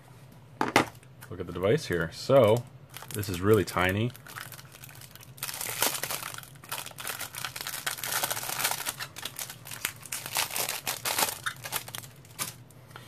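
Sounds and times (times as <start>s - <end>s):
plastic film crinkling: 2.4s - 12.7s.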